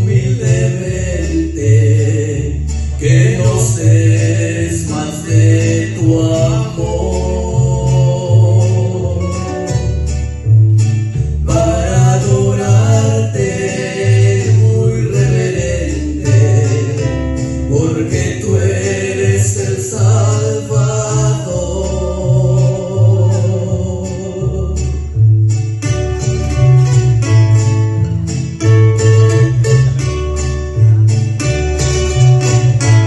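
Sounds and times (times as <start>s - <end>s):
men singing: 0.0s - 9.6s, 11.4s - 25.1s
acoustic guitars: 0.0s - 33.0s
bass guitar low notes: 0.0s - 33.0s.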